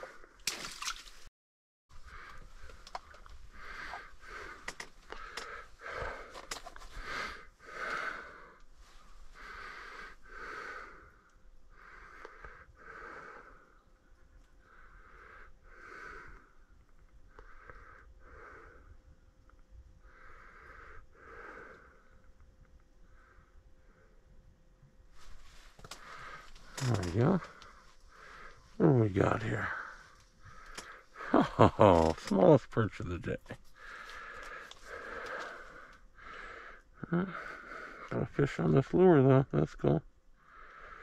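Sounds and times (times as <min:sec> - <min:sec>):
man breathing: 0:02.0 - 0:13.9, 0:14.6 - 0:19.1, 0:20.0 - 0:22.3, 0:25.2 - 0:28.9, 0:29.5 - 0:31.7, 0:33.6 - 0:38.1, 0:40.4 - 0:41.0.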